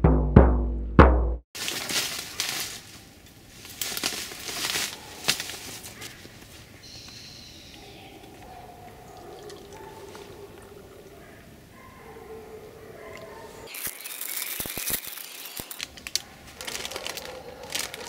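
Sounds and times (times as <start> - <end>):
crackling and rustling: 1.6 - 6.8, 13.6 - 18.0
tea trickling into cup: 8.1 - 11.2.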